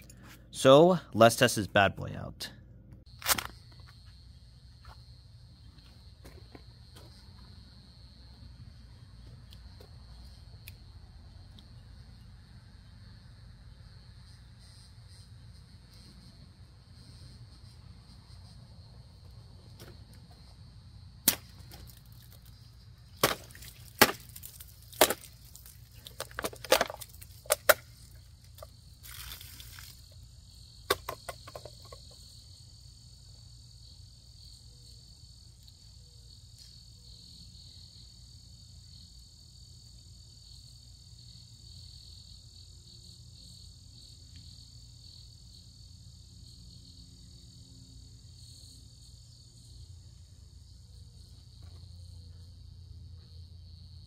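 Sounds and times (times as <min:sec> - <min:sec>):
high insect buzz: 0:03.1 - 0:26.2, 0:27.1 - 0:54.0
knife cracking plastic bottle: 0:03.2 - 0:03.6, 0:21.2 - 0:22.5, 0:23.2 - 0:30.0.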